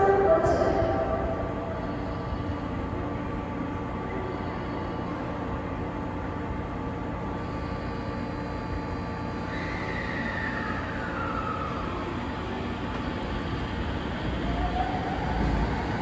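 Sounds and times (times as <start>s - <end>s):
train equipment hum and rumble: 0.0s - 16.0s
high whine gliding downward: 9.3s - 16.0s.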